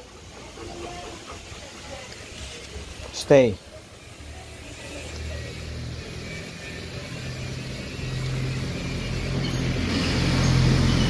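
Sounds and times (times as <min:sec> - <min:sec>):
low engine hum: 0:05.2 - 0:11.0.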